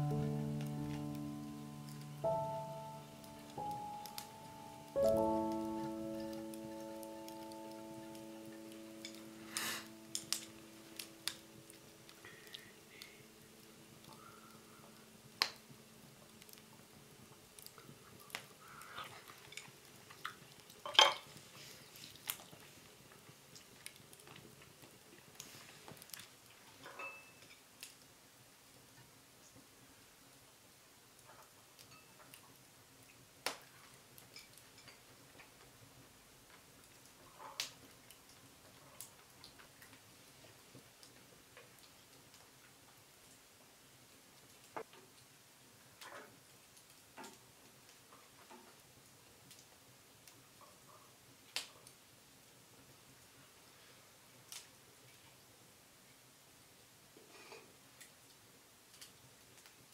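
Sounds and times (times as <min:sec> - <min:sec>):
small wood fire crackling: 0:00.0 - 0:59.9.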